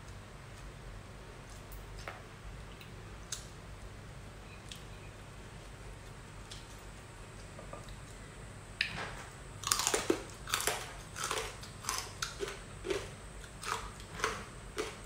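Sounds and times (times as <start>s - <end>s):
crunchy chewing: 9.6s - 15.0s.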